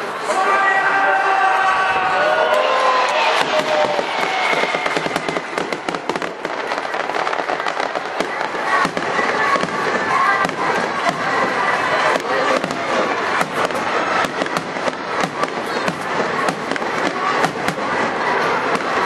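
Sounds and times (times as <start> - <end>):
fireworks bursting and crackling: 2.1 - 19.0.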